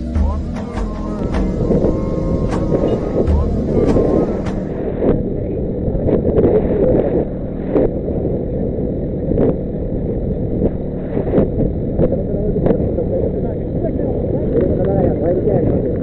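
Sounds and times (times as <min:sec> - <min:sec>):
road and wind noise: 0:01.6 - 0:16.0.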